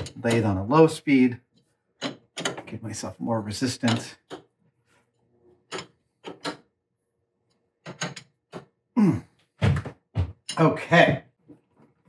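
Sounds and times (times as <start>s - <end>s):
chuck key clicking and knocking: 0.0s - 0.7s, 2.0s - 2.7s, 3.8s - 4.6s, 5.7s - 6.7s, 7.8s - 8.8s.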